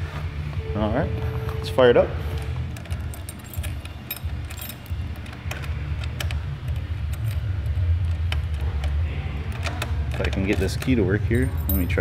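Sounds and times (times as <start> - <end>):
low steady rumble: 0.3 - 12.0
keys jangling in ignition lock: 2.4 - 7.8, 9.5 - 12.0.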